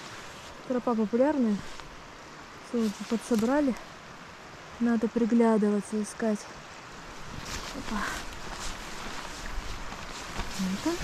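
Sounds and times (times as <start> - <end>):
wind rumble on microphone: 7.1 - 11.0
footfalls in grass: 7.2 - 11.0.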